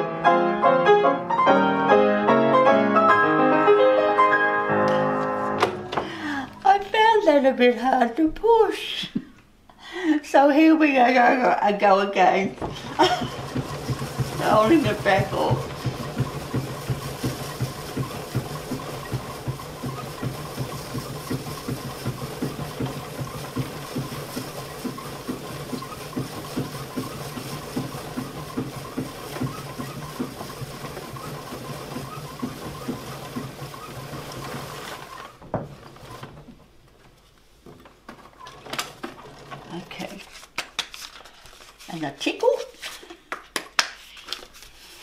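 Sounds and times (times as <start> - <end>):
pianola mechanism whirring: 12.2 - 40.4
paper roll rustling: 12.2 - 45.0.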